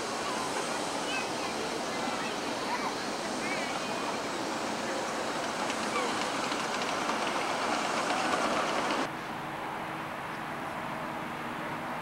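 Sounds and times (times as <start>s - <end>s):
miniature train cars rolling past: 0.0s - 9.1s
wheels clicking on rails: 0.0s - 9.1s.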